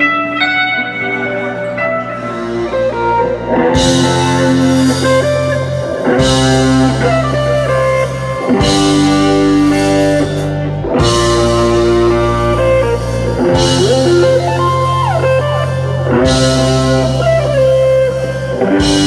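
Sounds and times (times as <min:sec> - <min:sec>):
bass guitar: 0:00.0 - 0:19.0
electric guitar melody: 0:00.0 - 0:19.0
drum kit: 0:01.8 - 0:19.0.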